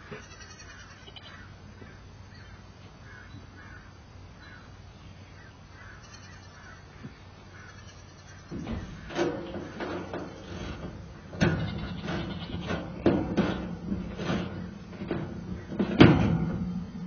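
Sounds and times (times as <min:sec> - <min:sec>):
low steady hum: 0:00.0 - 0:17.0
metal parts and tools clanking: 0:08.5 - 0:16.9.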